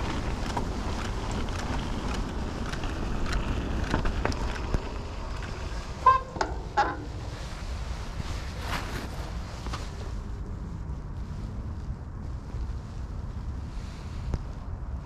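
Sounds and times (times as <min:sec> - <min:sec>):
bike clicks and rattles: 0:00.0 - 0:07.4
tyre rumble: 0:00.0 - 0:10.5
short squeaks: 0:06.0 - 0:07.1.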